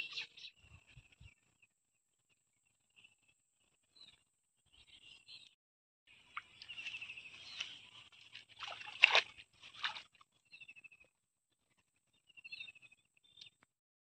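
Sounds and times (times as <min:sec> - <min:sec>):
small bird chirping in trills: 0:12.1 - 0:13.6.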